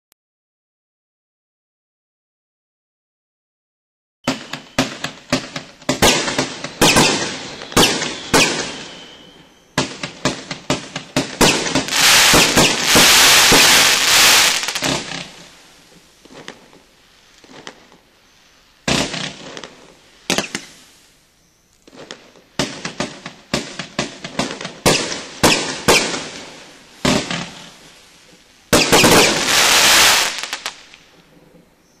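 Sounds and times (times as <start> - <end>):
fireworks launch thumps and bursts: 4.2 - 9.0, 9.8 - 15.5, 16.2 - 16.8, 17.4 - 18.0, 18.8 - 20.8, 21.8 - 27.7, 28.7 - 31.1.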